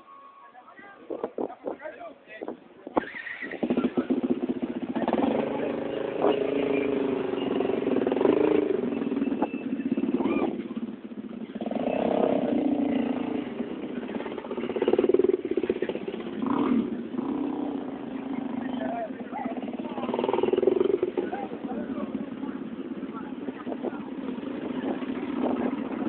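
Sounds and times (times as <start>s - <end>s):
motorcycles riding by: 2.9s - 26.0s.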